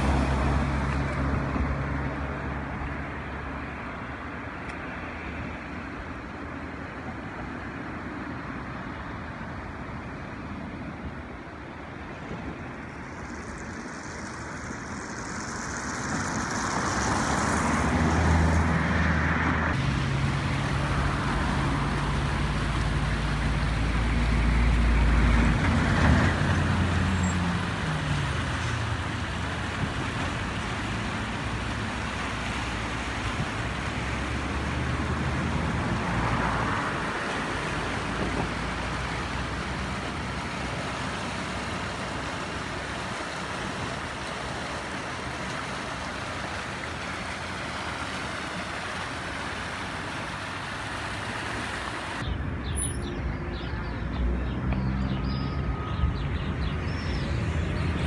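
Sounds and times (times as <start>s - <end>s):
river rapids rushing: 0.0s - 4.5s, 11.9s - 52.2s
vehicle driving past: 13.0s - 29.6s.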